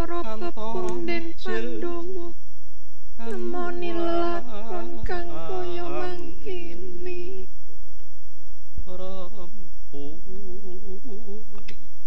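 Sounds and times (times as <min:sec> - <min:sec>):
person singing unaccompanied: 0:00.0 - 0:02.4, 0:03.2 - 0:07.5.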